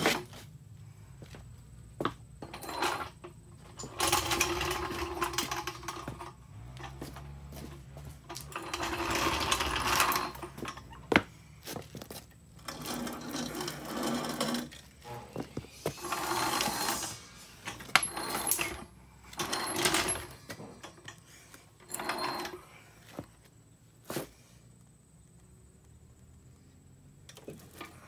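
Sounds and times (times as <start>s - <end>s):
rapid mechanical rattling: 2.5s - 11.2s, 12.5s - 21.2s.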